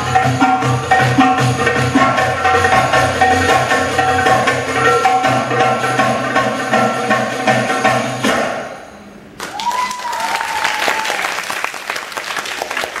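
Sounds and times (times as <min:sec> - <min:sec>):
belly-dance music with percussion: 0:00.0 - 0:08.8
audience applause: 0:09.4 - 0:13.0
high drawn-out cheer: 0:09.4 - 0:13.0.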